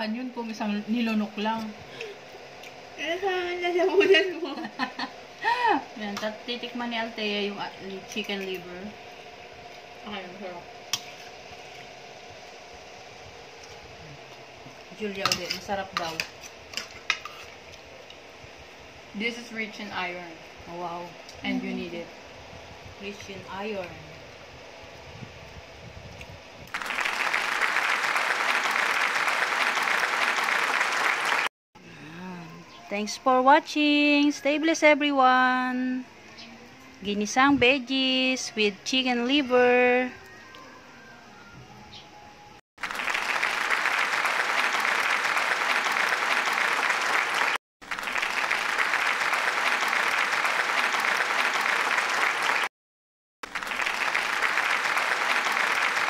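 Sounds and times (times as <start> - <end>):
applause: 26.7 - 31.5, 42.8 - 52.7, 53.4 - 56.0.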